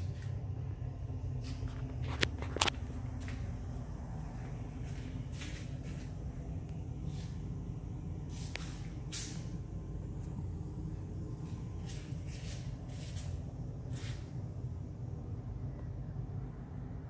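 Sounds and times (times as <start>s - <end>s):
low mechanical hum: 0.0s - 17.0s
short bursts of hiss: 8.2s - 9.6s, 11.8s - 14.4s.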